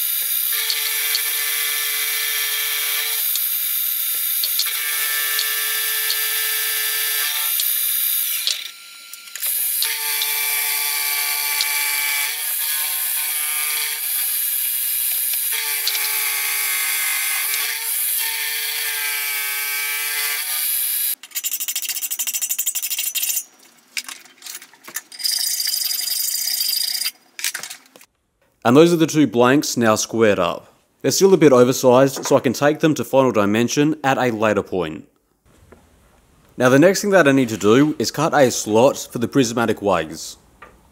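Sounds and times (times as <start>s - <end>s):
milling cutter high-pitched whine: 0.0s - 17.6s.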